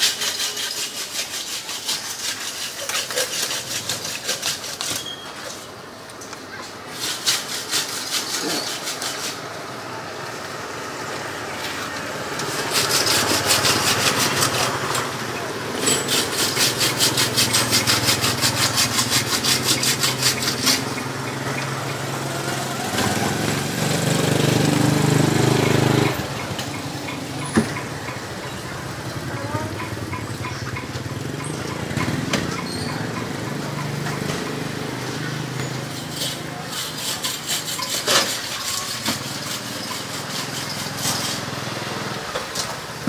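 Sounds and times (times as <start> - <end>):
small engine running: 7.7 - 43.0.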